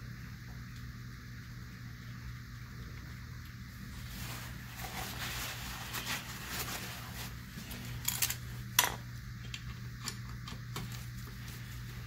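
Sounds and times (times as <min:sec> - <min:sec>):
steady low hum: 0:00.0 - 0:12.0
paper towel rustling: 0:03.8 - 0:08.6, 0:10.9 - 0:12.0.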